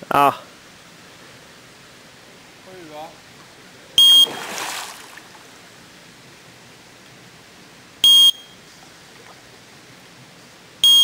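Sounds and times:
faint steady hiss: 0:00.0 - 0:11.0
bite alarm beep: 0:04.0 - 0:04.5, 0:08.0 - 0:08.6.

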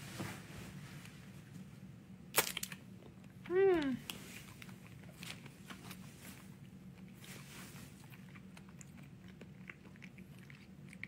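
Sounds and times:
steady low hum: 0:00.0 - 0:11.0
person chewing: 0:04.1 - 0:11.0.

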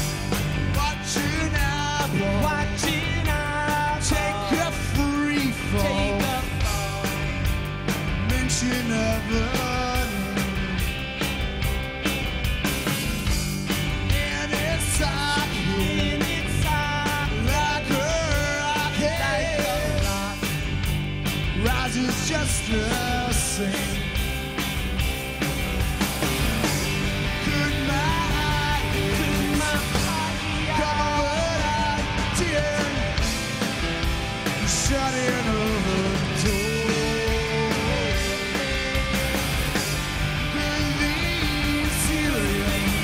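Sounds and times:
bass guitar: 0:00.0 - 0:43.0
drums: 0:00.0 - 0:43.0
electric guitar: 0:00.0 - 0:43.0
rock band playing: 0:00.0 - 0:43.0
man singing loudly: 0:00.8 - 0:07.3, 0:14.1 - 0:20.4, 0:27.4 - 0:33.1, 0:34.7 - 0:39.5, 0:40.4 - 0:43.0.

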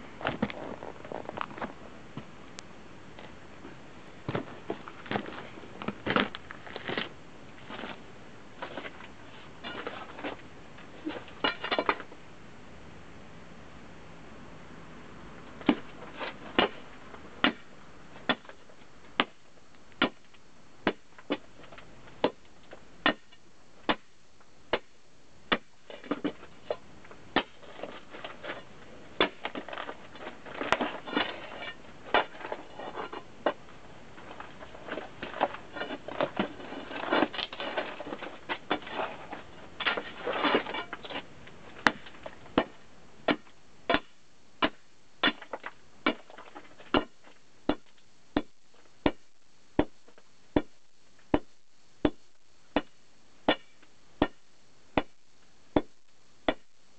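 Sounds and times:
tool striking rock: 0:15.6 - 0:15.9, 0:16.6 - 0:16.8, 0:17.4 - 0:18.6, 0:20.0 - 0:20.2, 0:20.8 - 0:21.4, 0:23.0 - 0:24.1, 0:24.7 - 0:24.9, 0:25.5 - 0:26.4, 0:27.4 - 0:27.6, 0:29.2 - 0:29.8, 0:41.8 - 0:49.2, 0:49.8 - 0:54.4, 0:55.0 - 0:56.7.

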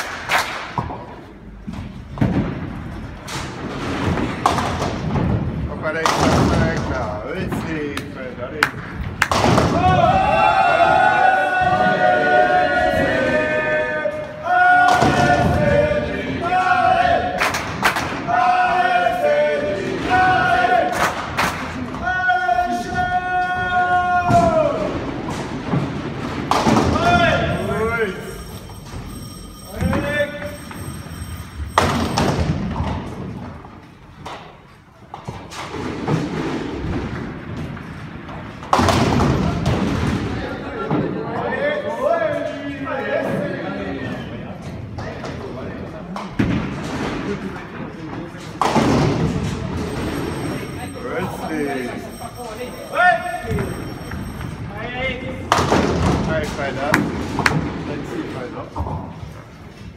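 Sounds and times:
group of voices chanting: 0:18.2 - 0:21.0.

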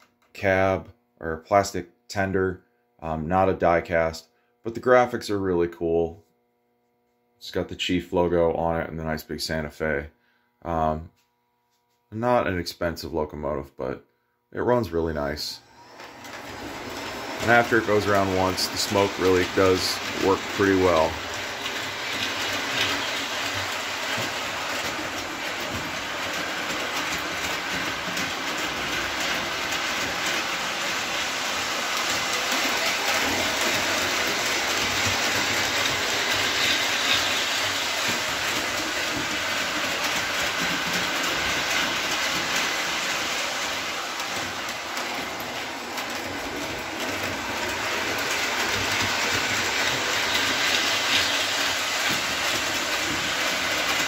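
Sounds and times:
model train running noise: 0:14.9 - 0:54.0.

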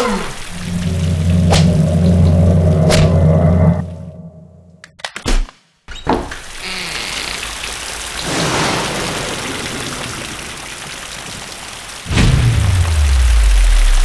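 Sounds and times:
heavy rain pouring: 0:00.0 - 0:04.5, 0:06.3 - 0:14.0
deep roll of thunder: 0:00.4 - 0:04.6, 0:08.2 - 0:10.7, 0:12.1 - 0:14.0.

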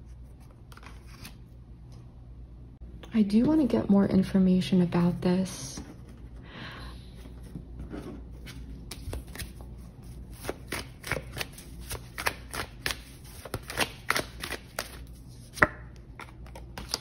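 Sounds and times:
playing cards being shuffled: 0:08.4 - 0:09.7, 0:10.3 - 0:17.0.

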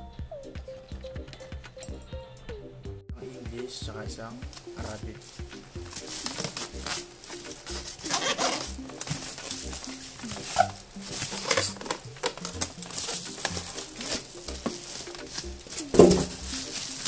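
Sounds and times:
background music: 0:00.0 - 0:17.0
styrofoam rubbing and squeaking: 0:04.3 - 0:17.0
plastic wrap crinkling: 0:04.4 - 0:17.0.

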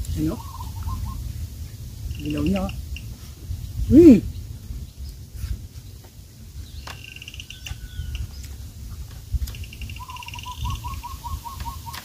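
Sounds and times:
bird trilling: 0:00.3 - 0:01.3, 0:06.8 - 0:08.4, 0:09.5 - 0:12.0.

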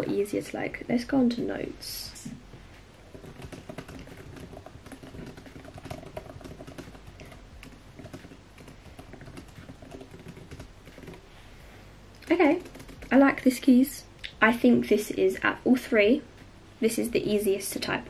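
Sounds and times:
fast typing on laptop keyboard: 0:03.0 - 0:11.3, 0:12.2 - 0:13.9.

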